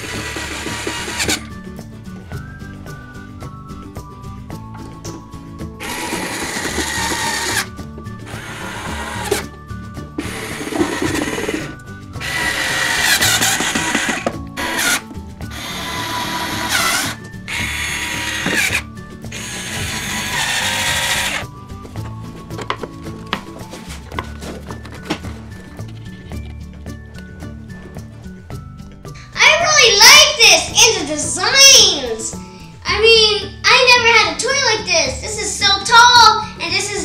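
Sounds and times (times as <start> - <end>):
power drill whining: 0.0 - 1.6, 5.8 - 9.5, 10.2 - 21.6
background music: 0.0 - 37.0.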